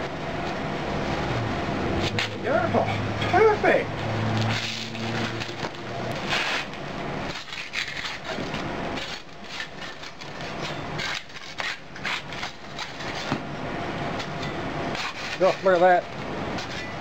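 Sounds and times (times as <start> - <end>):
cement mould scraping and crumbling: 4.4 - 13.5, 14.2 - 16.0.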